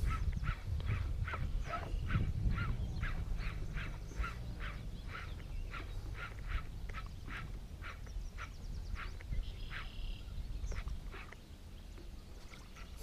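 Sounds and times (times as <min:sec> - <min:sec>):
animal calling rhythmically: 0:00.0 - 0:10.0.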